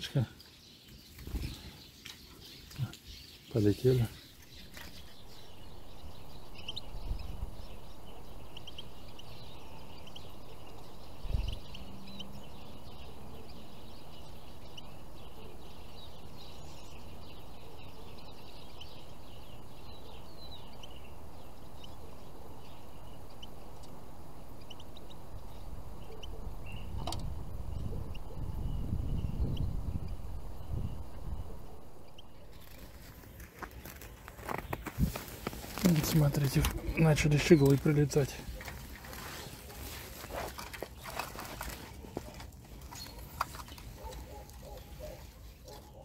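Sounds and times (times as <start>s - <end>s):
low background noise: 0.0s - 28.8s
finches chirping: 0.0s - 46.0s.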